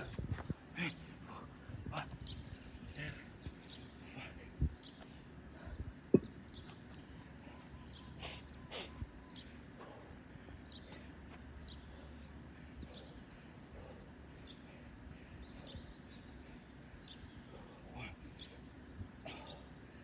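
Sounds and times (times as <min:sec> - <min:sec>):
man breathing hard: 0:08.2 - 0:20.0.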